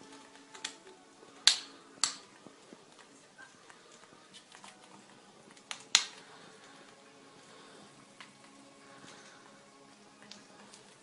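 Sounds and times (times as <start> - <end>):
parrot beak chewing ticks: 0.0 - 11.0
sharp clicks: 0.1 - 2.4, 3.0 - 7.0.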